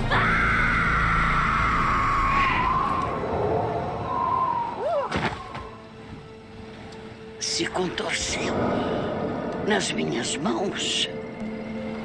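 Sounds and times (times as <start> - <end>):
woman screaming: 0.0 - 3.2, 4.1 - 5.5.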